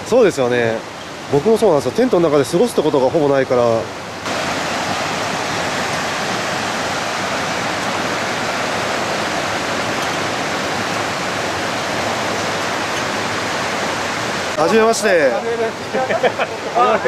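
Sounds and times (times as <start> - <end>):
river flowing over rocks: 0.0 - 17.0.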